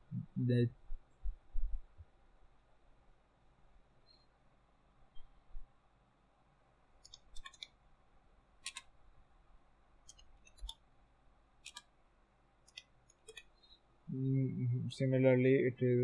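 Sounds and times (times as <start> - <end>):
keyboard key clicks: 7.0 - 7.7, 8.6 - 8.9, 11.6 - 11.9.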